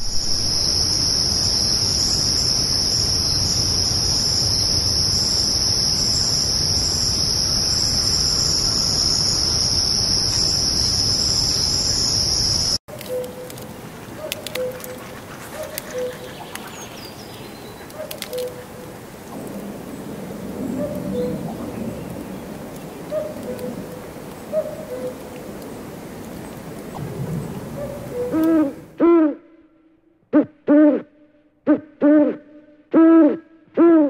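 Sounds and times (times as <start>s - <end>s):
insects trilling: 0.0s - 25.8s
dove cooing: 12.9s - 16.8s, 27.6s - 29.3s.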